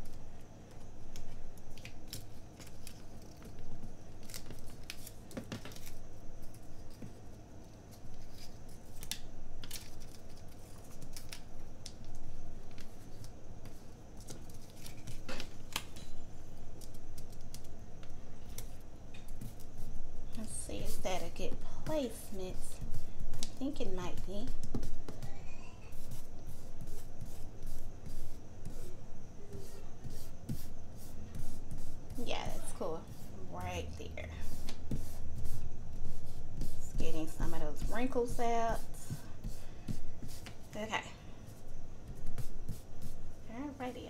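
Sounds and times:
paper stickers clicking and rustling: 1.1s - 13.4s.

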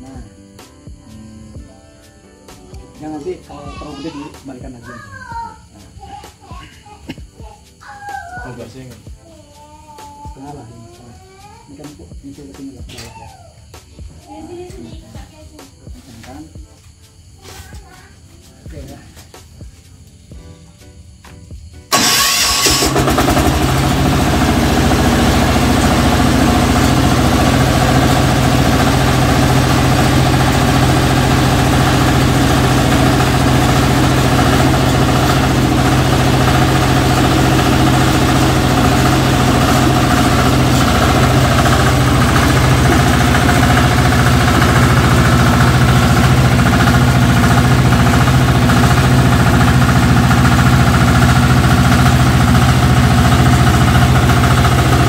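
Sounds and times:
diesel engine running steadily: 21.9s - 55.0s.

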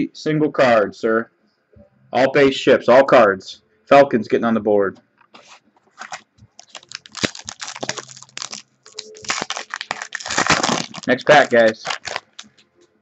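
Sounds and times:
card pack wrapper crinkling: 5.4s - 12.6s.

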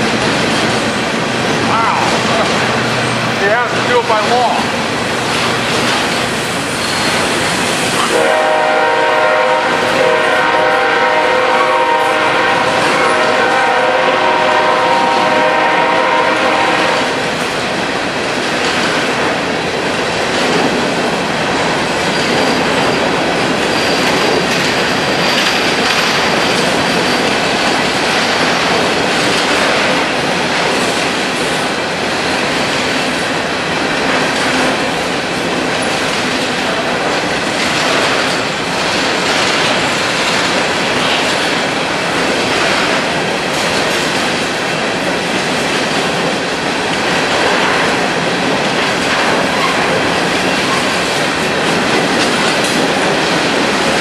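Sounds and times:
steel train wheels clattering on rails: 0.0s - 54.0s
high wheel squeal: 6.4s - 8.1s
locomotive horn: 8.0s - 17.2s.

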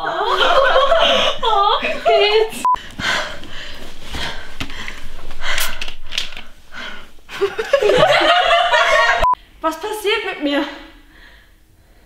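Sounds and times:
woman's voice: 0.0s - 2.7s, 9.6s - 11.0s
woman breathing hard: 2.8s - 7.6s, 10.8s - 12.0s.

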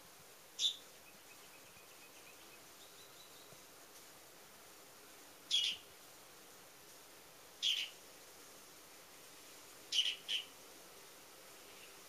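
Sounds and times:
songbird chirping: 0.5s - 4.1s, 5.4s - 5.9s, 7.5s - 8.1s, 9.8s - 10.6s.

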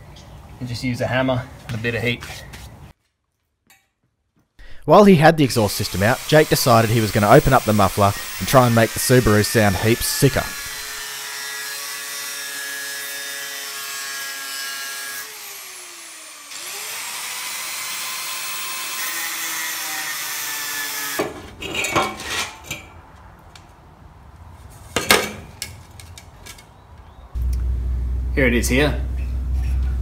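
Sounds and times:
angle grinder cutting metal: 5.5s - 21.3s
metal clanks and knocks: 21.2s - 22.9s, 25.0s - 26.6s.

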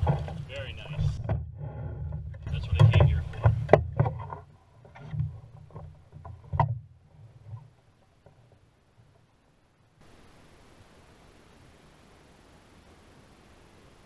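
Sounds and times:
knocks against canoe hull: 0.0s - 6.9s.

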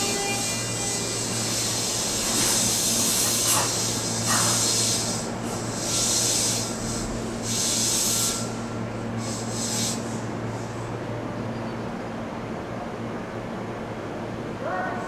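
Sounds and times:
compressed air hiss: 0.4s - 10.7s.

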